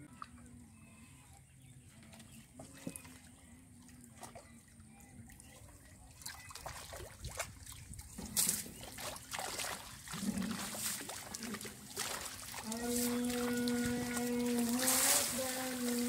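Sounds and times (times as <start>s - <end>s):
water splashes: 2.6s - 16.0s
water trickling and dripping: 3.8s - 16.0s.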